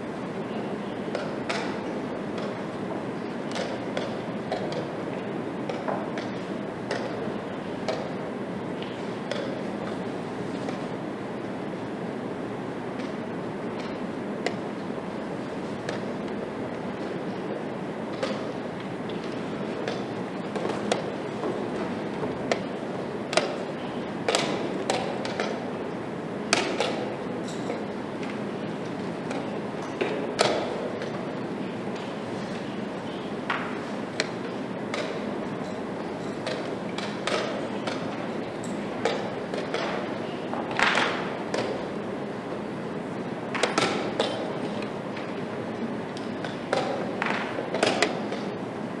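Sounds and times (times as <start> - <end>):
playing hall background noise: 0.0 - 49.0.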